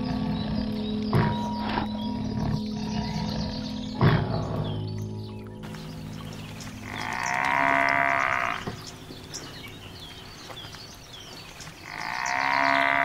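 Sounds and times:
small birds chirping: 0.0s - 13.0s
bull mooing: 6.8s - 8.9s, 11.8s - 13.0s.

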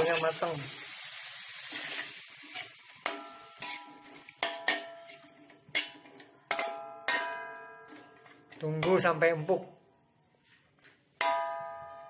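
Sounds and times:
wok ringing: 3.0s - 8.6s, 11.2s - 12.0s
metal spatula clacking on wok: 3.1s - 7.4s.

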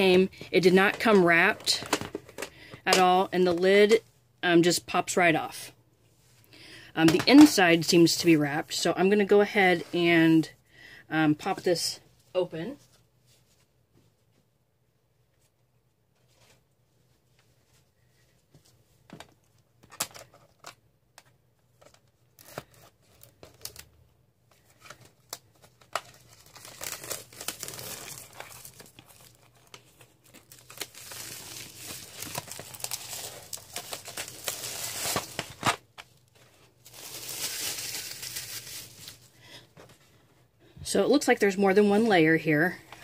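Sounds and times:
plastic film crinkling and tearing: 24.6s - 39.3s.

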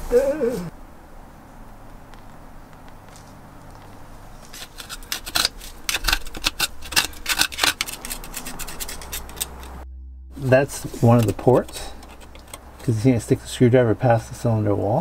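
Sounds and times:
screwdriver scraping and clicking: 4.6s - 9.8s, 11.2s - 12.9s.

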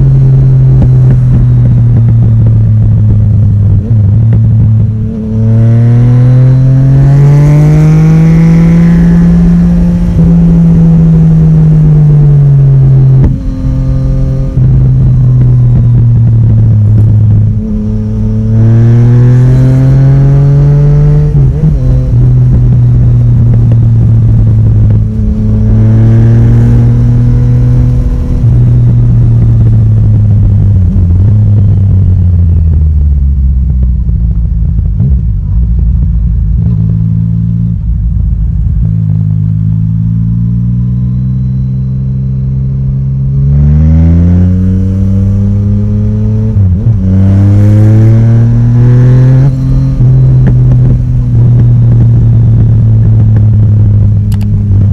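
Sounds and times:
motorcycle engine revving through gears: 0.0s - 54.9s.

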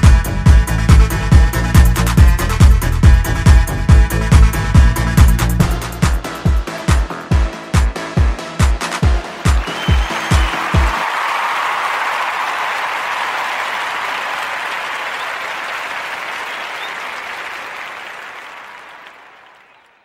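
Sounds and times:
kick drum beat: 0.0s - 11.0s
applause: 9.0s - 20.0s
crowd noise: 9.0s - 20.0s.

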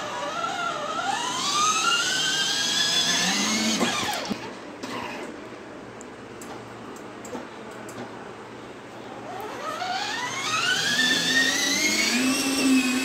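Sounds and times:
toy car motor whining: 0.0s - 5.3s, 9.4s - 13.0s.

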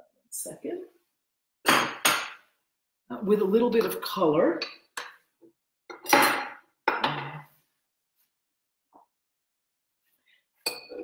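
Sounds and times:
kitchen items clattering: 5.9s - 7.5s.

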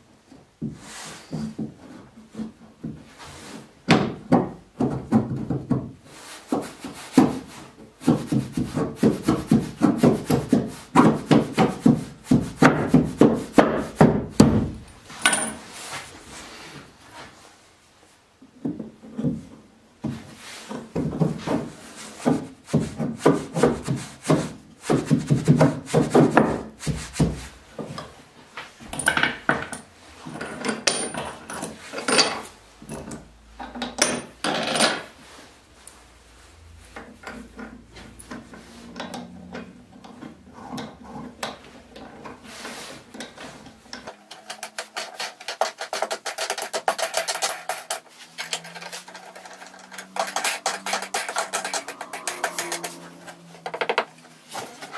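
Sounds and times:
metal washers clinking: 15.1s - 15.7s, 46.9s - 53.0s.

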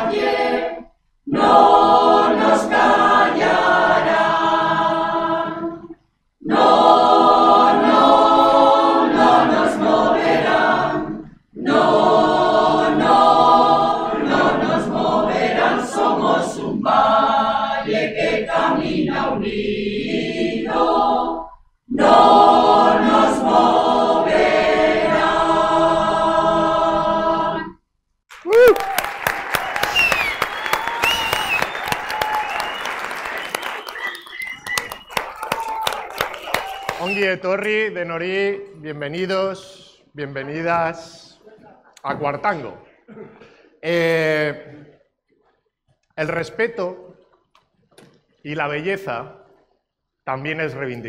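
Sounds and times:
mixed choir singing a cappella: 0.0s - 27.8s.

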